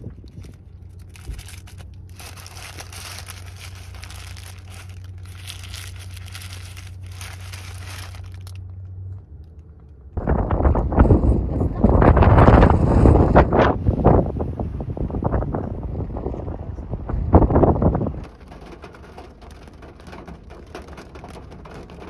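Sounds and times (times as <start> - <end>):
paper wrapper crinkling: 0.0 - 8.8, 18.2 - 22.0
low hum inside a car: 0.0 - 22.0.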